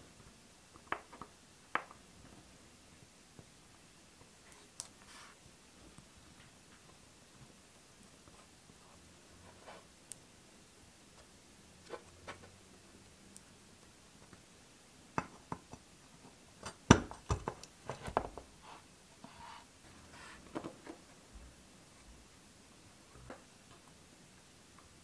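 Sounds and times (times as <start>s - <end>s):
soft handling sounds: 2.2s - 10.0s.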